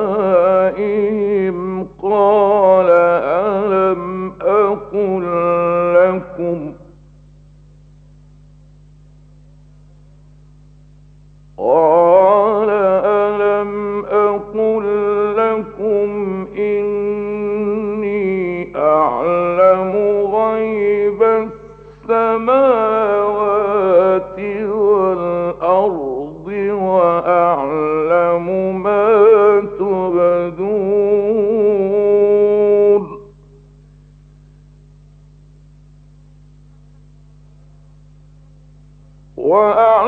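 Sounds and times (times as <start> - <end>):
man chanting recitation: 0.0 - 7.0, 11.6 - 33.4, 39.4 - 40.0
low radio hum: 0.0 - 40.0.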